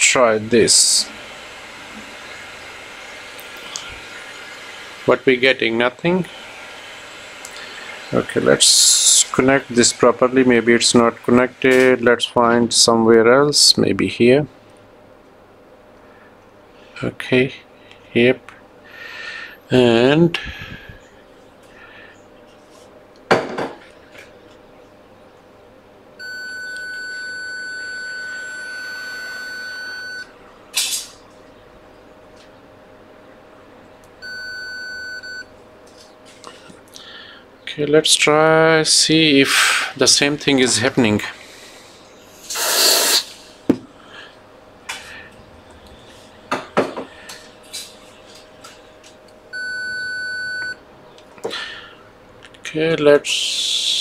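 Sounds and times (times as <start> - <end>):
loud hissing snap: 3.3 - 4.0, 39.4 - 40.0, 42.4 - 43.6
multimeter continuity beep: 26.2 - 30.3, 34.2 - 35.5, 49.5 - 50.8.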